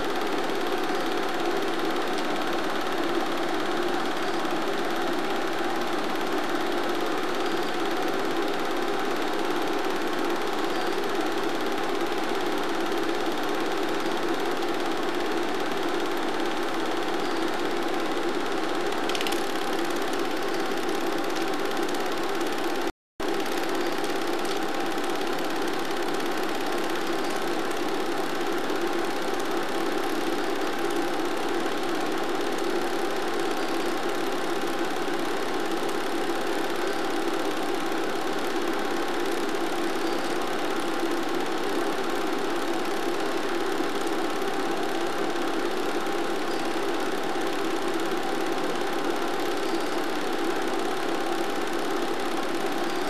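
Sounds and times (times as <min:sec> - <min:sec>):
steady mechanical whir: 0:00.0 - 0:53.0.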